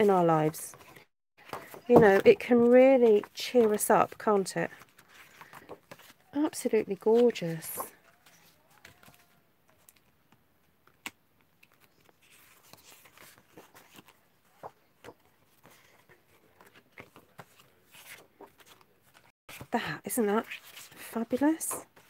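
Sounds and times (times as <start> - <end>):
paper rustling and tapping: 0.4 - 6.2.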